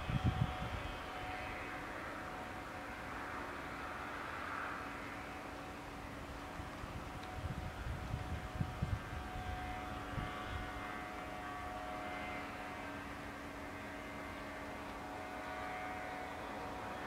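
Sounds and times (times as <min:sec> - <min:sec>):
wind buffeting microphone: 0:00.0 - 0:01.1, 0:06.5 - 0:10.8.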